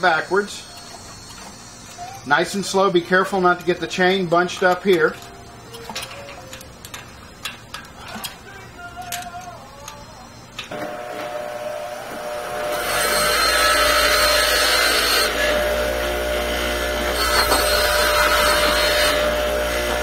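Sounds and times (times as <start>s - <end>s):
grinder grinding steel: 0.0s - 20.0s
bicycle chain clicks: 0.7s - 10.7s
bench grinder running: 10.7s - 20.0s.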